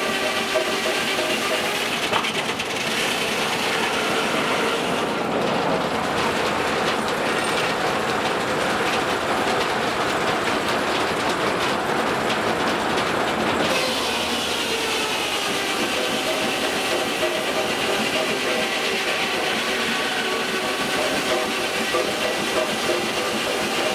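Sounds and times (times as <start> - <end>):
saw blade spinning whine: 0.0 - 5.2, 13.6 - 23.9
circular saw cutting log: 0.0 - 5.4, 13.6 - 23.9
saw carriage running: 0.0 - 23.9.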